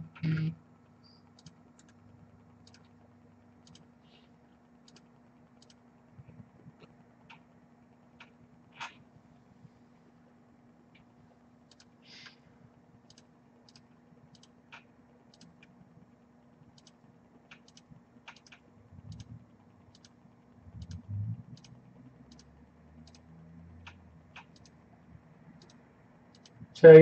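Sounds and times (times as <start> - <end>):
computer keyboard clicking: 1.3 - 2.0, 2.6 - 3.0, 3.6 - 3.9, 4.8 - 5.8, 11.7 - 11.9, 13.1 - 15.7, 16.7 - 24.8, 25.6 - 26.6.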